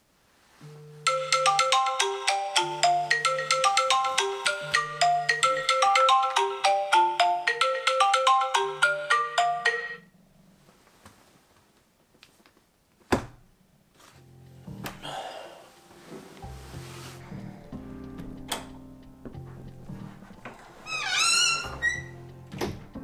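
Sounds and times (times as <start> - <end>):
phone alarm tone melody: 1.0 - 10.1.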